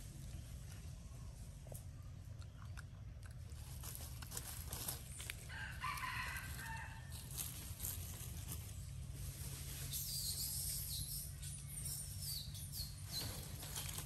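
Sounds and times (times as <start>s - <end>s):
rooster crowing: 5.5s - 7.2s.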